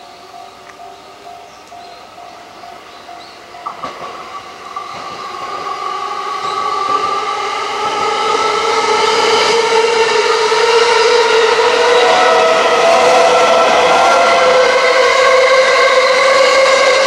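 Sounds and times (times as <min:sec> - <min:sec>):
electric train approaching: 0:00.0 - 0:17.0.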